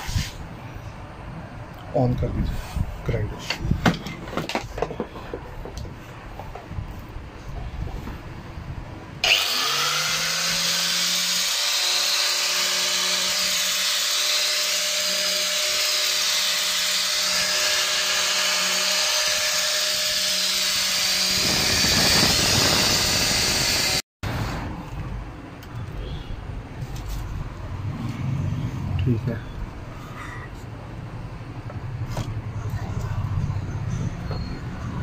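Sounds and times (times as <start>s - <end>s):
angle grinder high whine: 9.2s - 24.0s.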